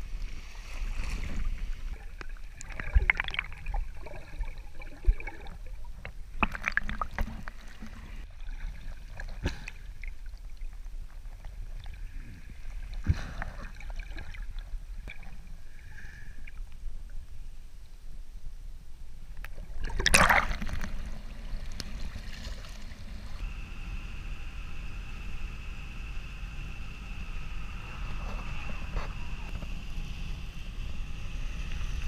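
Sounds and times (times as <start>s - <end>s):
underwater sound: 0.0s - 18.0s, 19.2s - 32.0s
low rumble: 0.0s - 32.0s
water sloshing and splashing: 0.2s - 15.7s, 19.4s - 23.4s.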